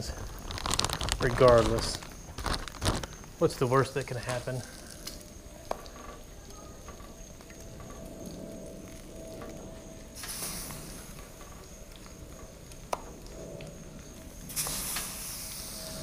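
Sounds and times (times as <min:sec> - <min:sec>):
food sizzling on a griddle: 0:10.2 - 0:11.7, 0:14.5 - 0:16.0.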